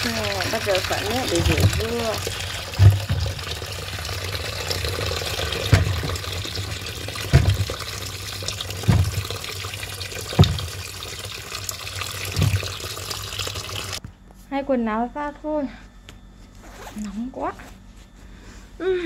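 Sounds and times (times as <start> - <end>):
tap water running into basin: 0.0 - 14.0
dull thumps: 1.3 - 4.0, 5.3 - 9.6, 10.3 - 10.9, 12.2 - 12.9.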